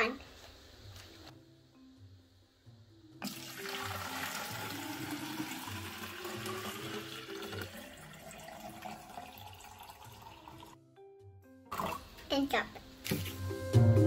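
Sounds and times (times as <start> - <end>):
water pouring into cylinder: 3.2 - 10.8.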